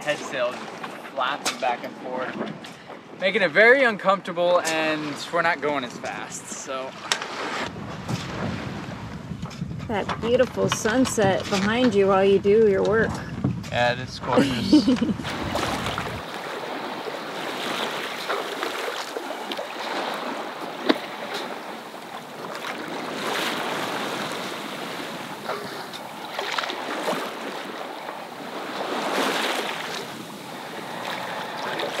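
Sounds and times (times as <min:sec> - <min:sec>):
water rushing along boat hull: 0:00.0 - 0:32.0
wind on microphone: 0:07.4 - 0:18.4.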